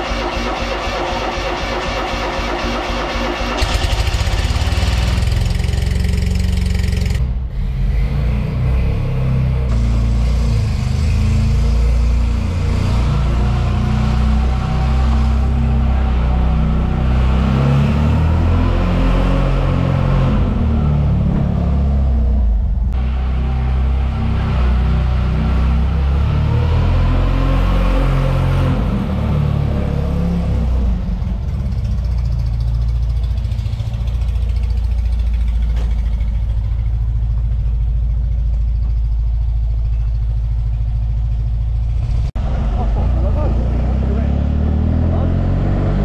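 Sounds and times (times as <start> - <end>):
background music with low beat: 0.0 - 3.8
small car engine running: 0.0 - 22.2, 28.7 - 46.0.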